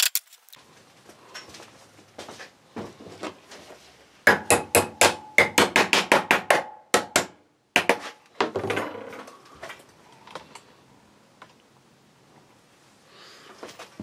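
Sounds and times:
hammer striking staples into wood: 0:04.3 - 0:08.0.

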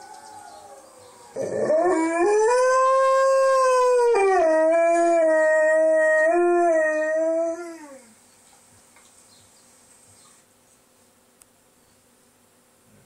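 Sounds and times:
dog howling: 0:00.0 - 0:08.1.

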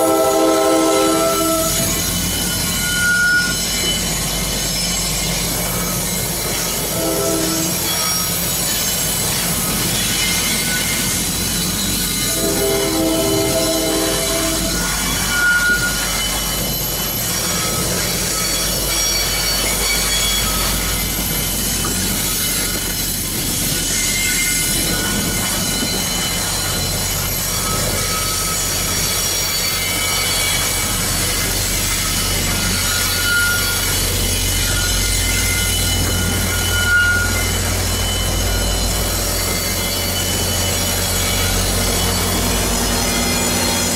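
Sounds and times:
train horn chord: 0:00.0 - 0:01.9, 0:06.9 - 0:07.8, 0:12.3 - 0:14.7
train rumble: 0:00.0 - 0:43.9
train wheels squealing on rails: 0:00.0 - 0:43.9.

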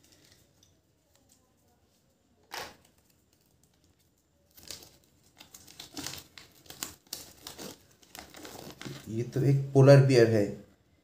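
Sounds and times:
toy packaging crinkling: 0:02.6 - 0:09.1
paper leaflet rustling: 0:02.8 - 0:09.2.

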